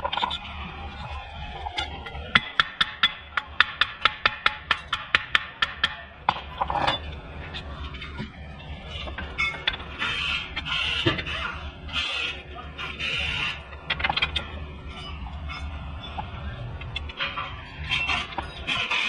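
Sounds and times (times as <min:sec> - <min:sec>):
scrape and loose clatter: 0:00.0 - 0:00.5, 0:06.3 - 0:11.4, 0:16.8 - 0:19.0.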